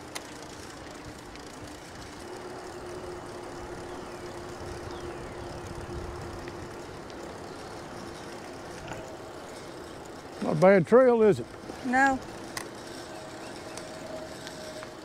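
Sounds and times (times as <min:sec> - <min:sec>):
faint steady hum: 0:00.0 - 0:10.6
bicycle tyre and wind noise: 0:00.0 - 0:15.0.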